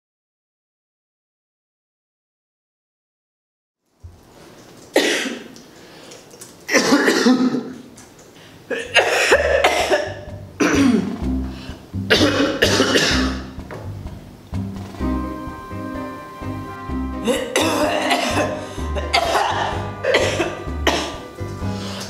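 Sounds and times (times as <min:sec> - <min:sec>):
person coughing: 0:05.0 - 0:05.5, 0:06.7 - 0:07.8, 0:08.7 - 0:11.2, 0:12.1 - 0:13.5, 0:17.2 - 0:21.2
background music with low bass: 0:09.0 - 0:22.0.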